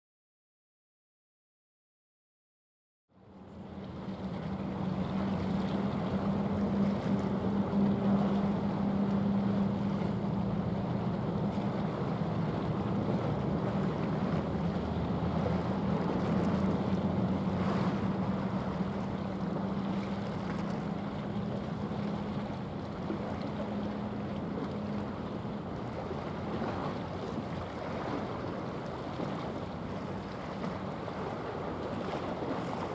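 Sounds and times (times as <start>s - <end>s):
water noise: 3.1s - 32.9s
wind: 3.1s - 32.9s
ship engine humming: 3.2s - 32.9s.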